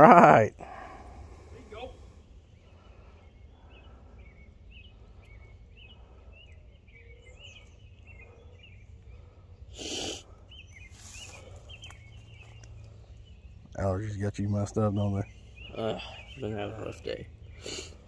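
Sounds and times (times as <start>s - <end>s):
birds chirping: 0.0s - 18.0s
low background rumble: 0.6s - 18.0s
person sniffing: 9.7s - 10.3s, 17.6s - 18.0s.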